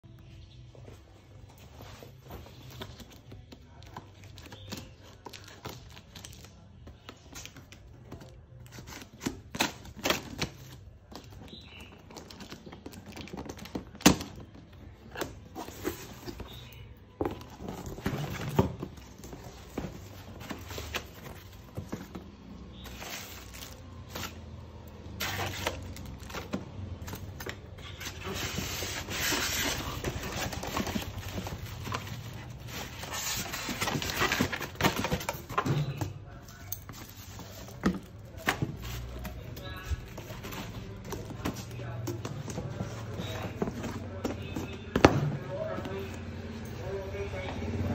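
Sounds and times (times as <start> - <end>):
cardboard box scraping and rustling: 25.2 - 35.9.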